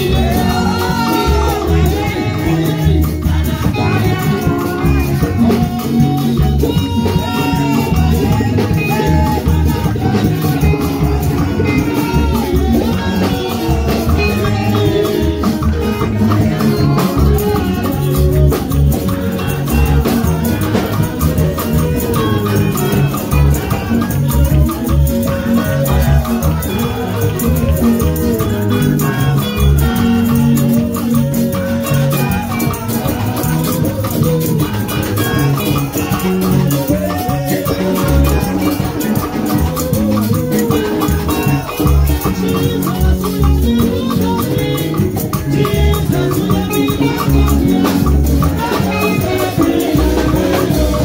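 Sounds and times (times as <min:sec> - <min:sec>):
upbeat music with pulsing bass: 0:00.0 - 0:51.0.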